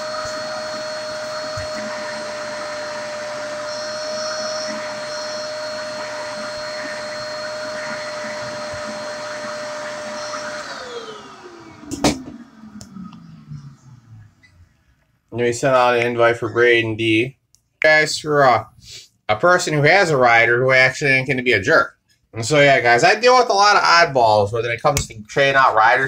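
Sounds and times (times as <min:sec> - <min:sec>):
vacuum cleaner whining: 0:00.0 - 0:14.9.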